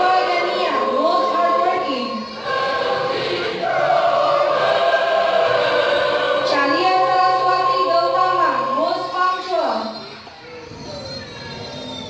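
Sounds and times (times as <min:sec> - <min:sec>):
choir singing held notes: 0:00.0 - 0:09.5
steady accompanying tone: 0:00.0 - 0:09.8.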